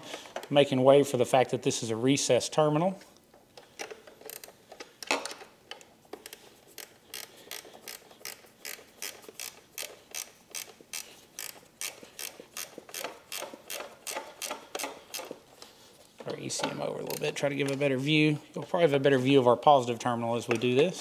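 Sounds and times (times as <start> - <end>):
ratcheting wrench clicking: 3.8 - 15.4.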